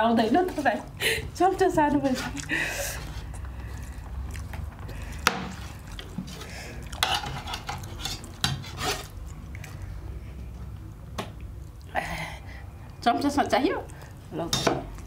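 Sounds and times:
metal spoon scraping steel plates: 7.0 - 9.1.

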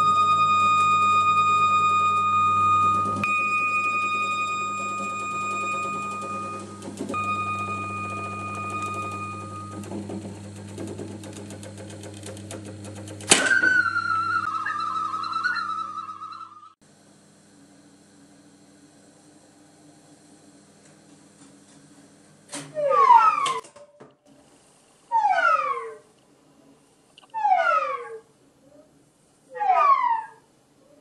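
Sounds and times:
higher wavering note: 0.0 - 9.8
horn steady note: 0.0 - 9.8
low hum: 0.0 - 10.6
fast mechanical clatter: 5.0 - 7.2, 8.2 - 14.5.

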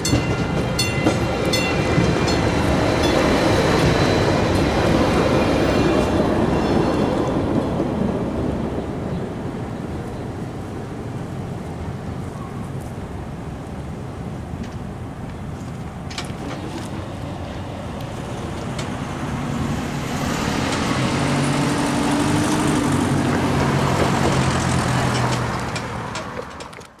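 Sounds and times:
passing vehicle engine and tyres: 16.8 - 27.0.

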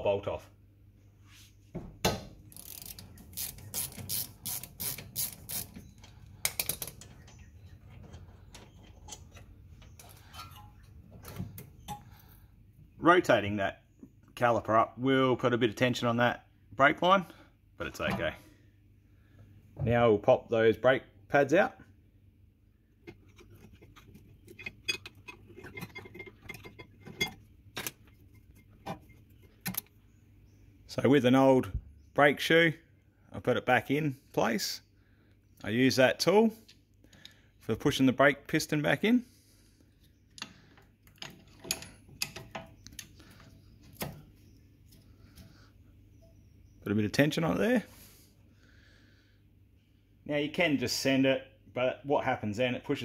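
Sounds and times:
ratchet handle clicking: 2.5 - 5.8
metallic clicks and scrapes: 2.5 - 10.9, 23.0 - 30.0
metal clicks clattering: 40.3 - 43.1.

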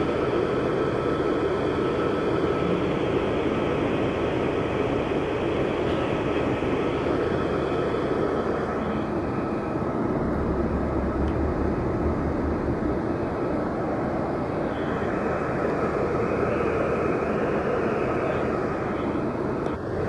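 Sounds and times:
vehicle engine and road rumble: 0.0 - 20.0
deeper rumble: 5.6 - 20.0.

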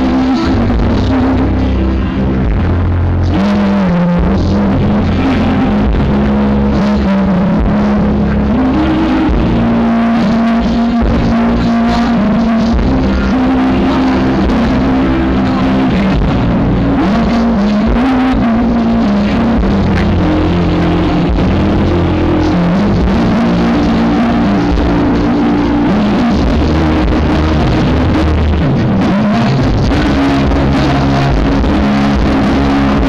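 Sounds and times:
distorted live rock band: 0.0 - 33.0
electric guitar lead notes: 0.0 - 33.0.

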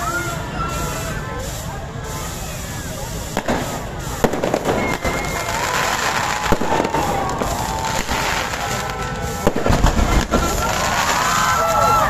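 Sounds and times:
spark fountains crackling hiss: 0.0 - 12.0
wavering whistling fireworks: 0.0 - 12.0
firecracker bangs: 3.2 - 12.0.

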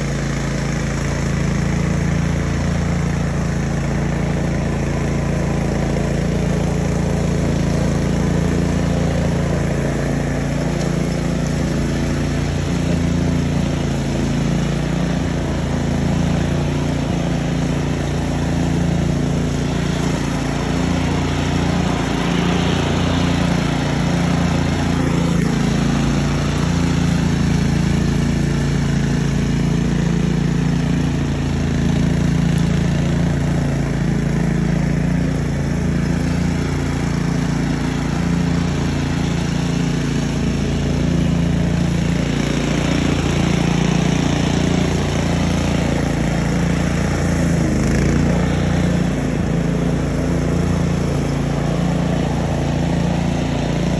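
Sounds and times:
mower engine running: 0.0 - 53.9.

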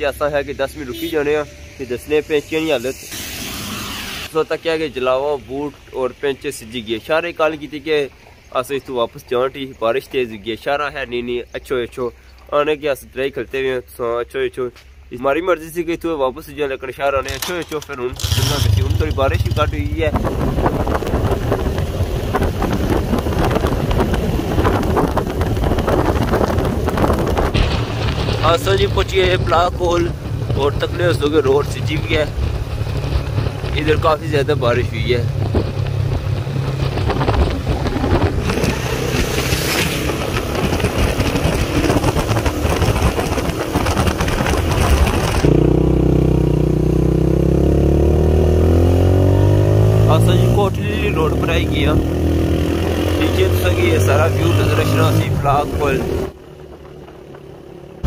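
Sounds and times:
motorcycle running on wet road: 17.3 - 58.0
wind buffeting microphone: 18.0 - 46.6.

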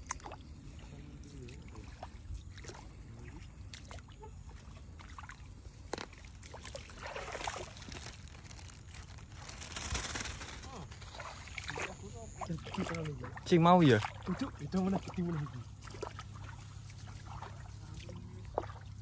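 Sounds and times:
water trickling and dripping: 0.0 - 9.2, 11.1 - 19.0
plastic bag rustling: 6.9 - 11.4.

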